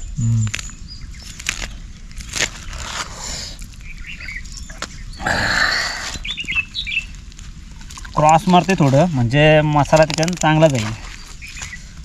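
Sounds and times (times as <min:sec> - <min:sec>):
plastic sheet crinkling: 0:01.2 - 0:03.8, 0:07.1 - 0:12.0.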